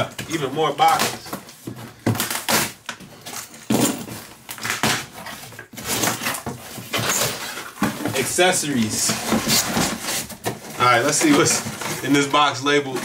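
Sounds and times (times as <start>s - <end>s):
cardboard rustling and knocks: 3.6s - 12.2s.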